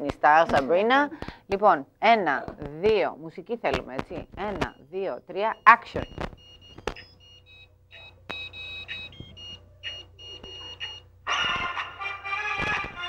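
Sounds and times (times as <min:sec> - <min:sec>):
high electronic beeps: 0:04.0 - 0:11.6
music: 0:11.3 - 0:13.0.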